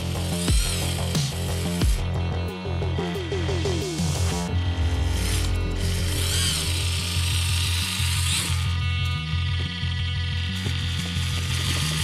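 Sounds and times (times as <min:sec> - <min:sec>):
electronic music with heavy bass: 0:00.0 - 0:07.6.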